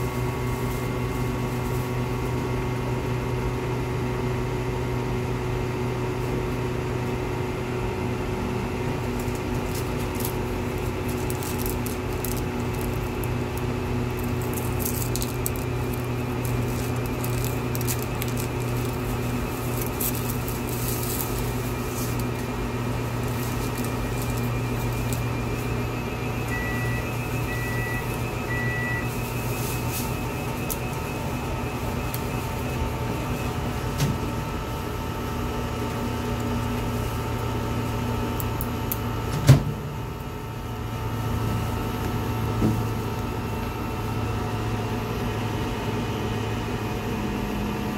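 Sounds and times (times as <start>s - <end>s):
electrical hum and fan: 0.0s - 47.9s
light crackle: 9.2s - 25.8s
short beeps: 25.4s - 32.6s.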